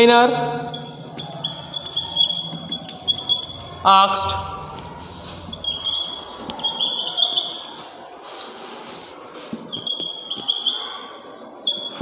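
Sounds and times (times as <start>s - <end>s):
marker squeaking on whiteboard: 0.8s - 7.9s, 8.9s - 11.0s, 11.7s - 12.0s.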